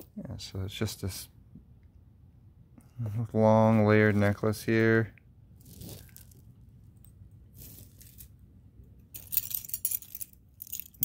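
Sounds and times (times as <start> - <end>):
metal chains and beads jingling: 9.1 - 11.0.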